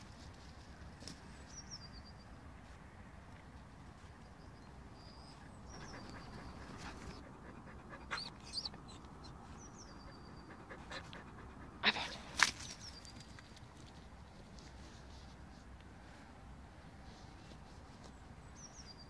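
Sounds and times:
dog panting: 5.7s - 12.4s.

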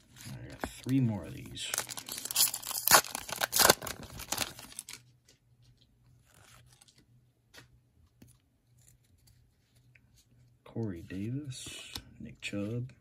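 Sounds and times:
card pack wrapper tearing: 0.8s - 5.0s.

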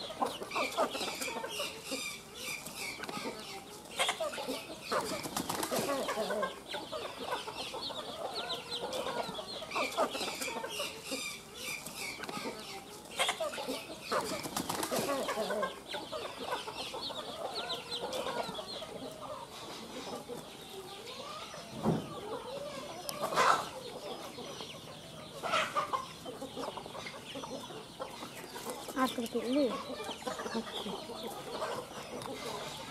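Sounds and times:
chicks cheeping: 0.0s - 32.9s
hens clucking: 0.0s - 32.9s
wings flapping: 4.9s - 6.0s, 14.1s - 15.2s.

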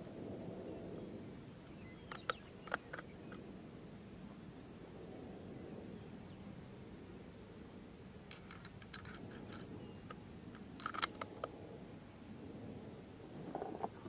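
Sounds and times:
low steady rumble: 0.0s - 14.0s
small clicks and snaps: 2.1s - 3.4s, 8.3s - 11.6s.

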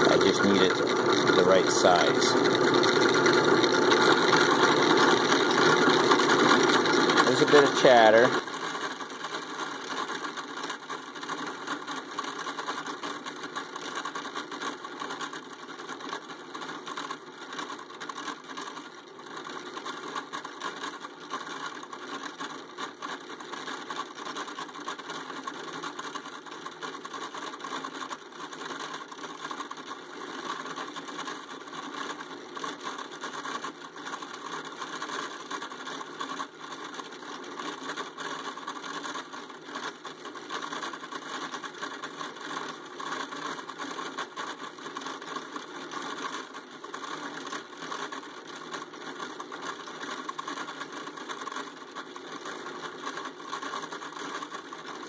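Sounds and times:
cutter chatter: 0.0s - 2.4s
drill press boring steel: 0.0s - 9.0s.

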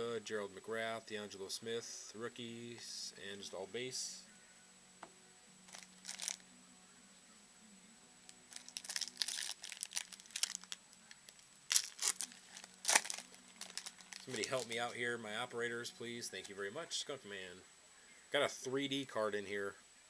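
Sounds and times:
wrapper crinkling: 5.7s - 6.4s, 8.5s - 15.0s
wrapper ripping open: 5.7s - 6.4s, 8.5s - 14.9s.

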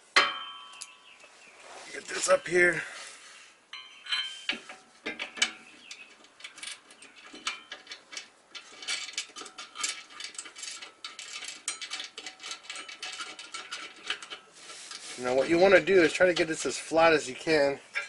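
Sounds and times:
light metal clinks: 3.7s - 4.8s.

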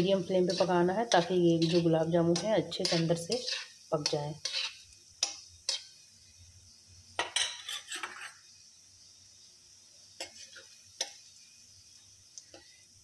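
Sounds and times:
oil sizzling: 0.0s - 13.0s
steel spoon clinking on metal pan: 0.5s - 5.9s, 7.2s - 8.3s.

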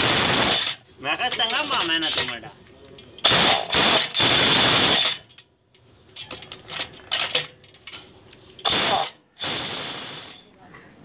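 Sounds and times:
impact wrench whine and rattle: 3.2s - 5.4s.

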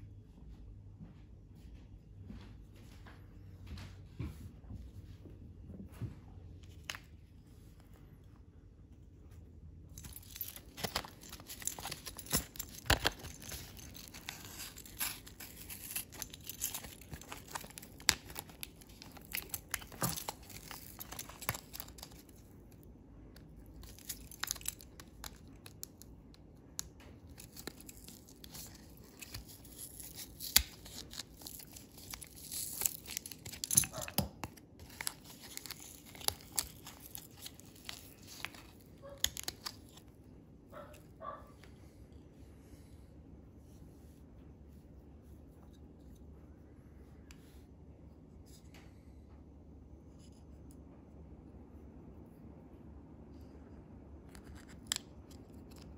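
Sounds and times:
blister packaging tearing and crinkling: 9.9s - 22.8s, 23.4s - 40.2s.

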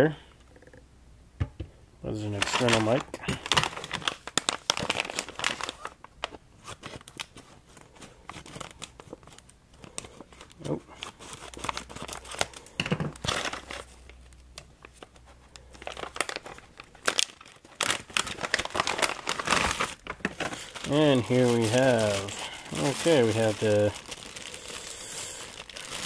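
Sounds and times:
plastic bag crinkling: 2.2s - 26.0s.

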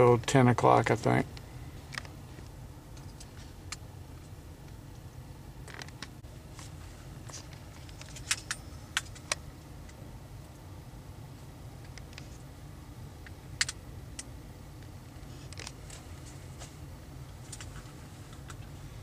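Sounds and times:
low steady rumble: 0.0s - 19.0s
handling clicks and rattles: 5.6s - 10.0s.

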